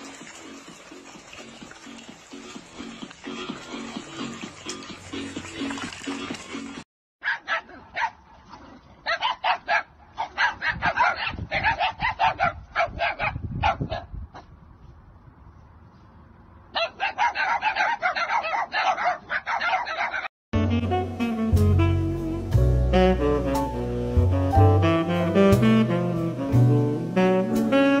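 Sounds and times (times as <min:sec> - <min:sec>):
dogs barking: 0:07.2 - 0:14.5, 0:16.7 - 0:20.3.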